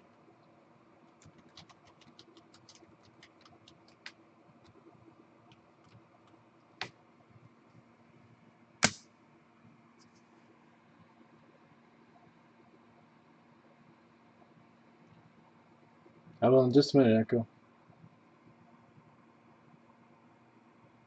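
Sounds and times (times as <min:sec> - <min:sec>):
faint steady hum: 0:00.0 - 0:21.0
typing on a keyboard: 0:01.1 - 0:04.9, 0:05.5 - 0:07.0
sharper keyboard clicks: 0:01.2 - 0:04.8.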